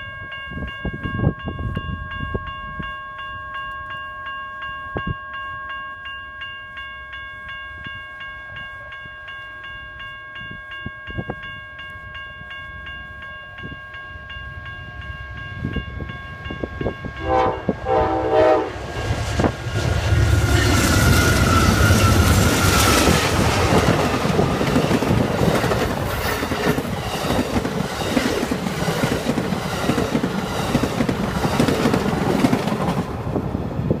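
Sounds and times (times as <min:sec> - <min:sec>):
train horn blasts: 0:17.1 - 0:19.5
locomotive engine rumble: 0:17.3 - 0:34.0
train wheels clickety-clack: 0:18.9 - 0:33.5.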